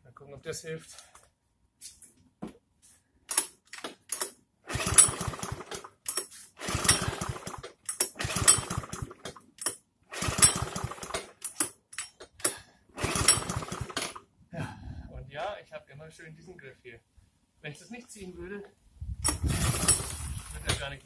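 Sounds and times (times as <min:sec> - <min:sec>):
recoil starter cranking engine: 0:04.1 - 0:11.8, 0:12.4 - 0:14.2, 0:19.3 - 0:20.9.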